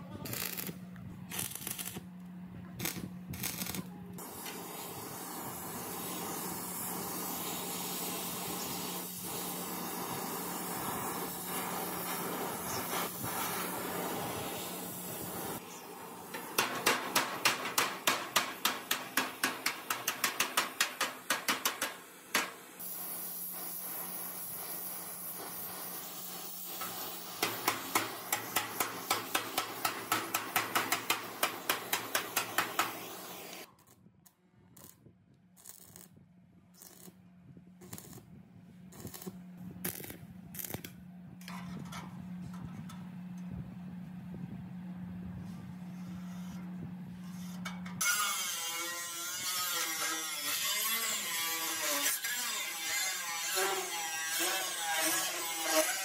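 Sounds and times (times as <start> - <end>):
rapid metal hammering: 16.6 - 22.6, 27.4 - 33.0.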